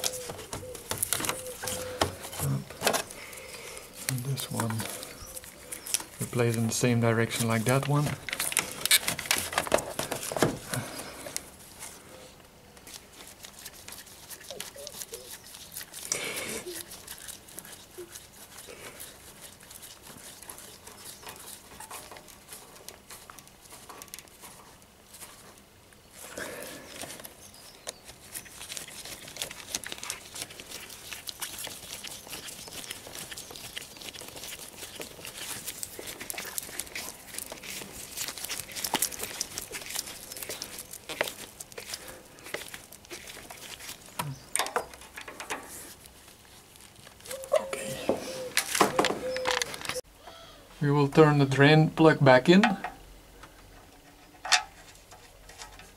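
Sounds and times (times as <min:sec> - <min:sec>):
gloves rustling: 0:00.0 - 0:50.0.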